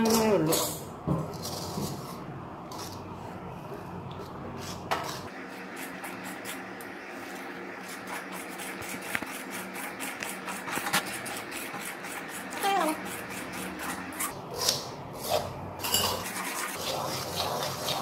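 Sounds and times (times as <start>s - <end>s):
metal spoon scraping pan: 0.0s - 3.1s, 9.4s - 18.0s.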